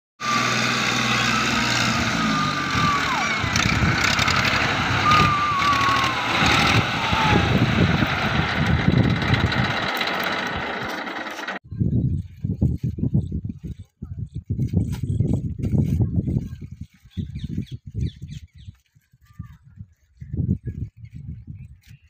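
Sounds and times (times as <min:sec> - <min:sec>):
tractor diesel engine running: 0:00.2 - 0:11.6.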